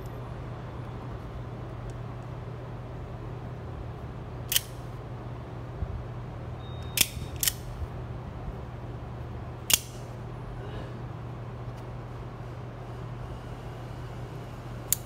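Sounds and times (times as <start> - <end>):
steady low hum: 0.0 - 15.0
knife blade metallic clicks: 9.7 - 10.0.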